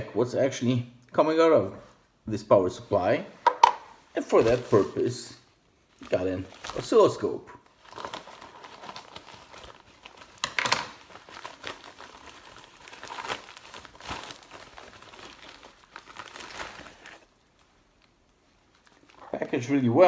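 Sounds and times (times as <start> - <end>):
plastic crinkling and rustling: 5.9 - 20.0.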